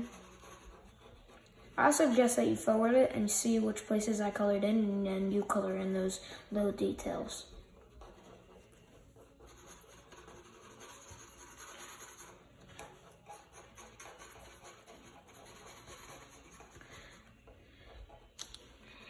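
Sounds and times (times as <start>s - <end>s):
marker scratching on paper: 0.0s - 2.6s, 7.1s - 18.8s.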